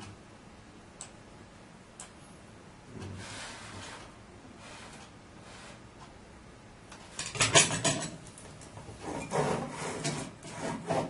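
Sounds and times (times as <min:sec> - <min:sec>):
handling rubbing and scraping: 0:03.0 - 0:05.8, 0:08.8 - 0:11.0.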